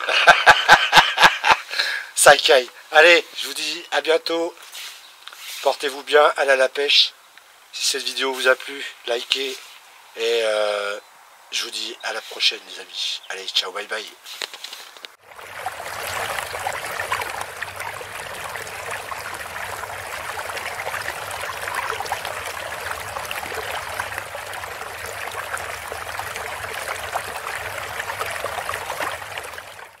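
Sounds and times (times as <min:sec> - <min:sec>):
trickling water: 0:15.1 - 0:30.0.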